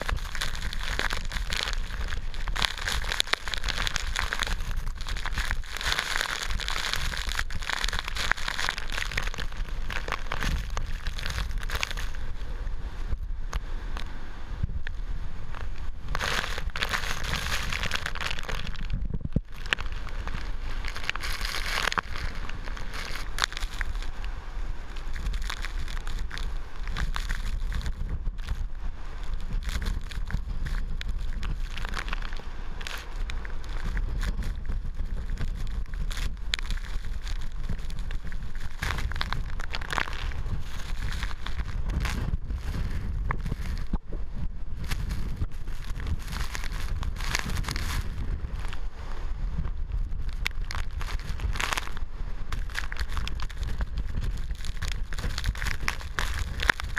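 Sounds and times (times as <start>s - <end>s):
rain hitting camera: 0.0s - 14.2s, 14.8s - 44.0s
strong wind on microphone: 0.0s - 56.9s.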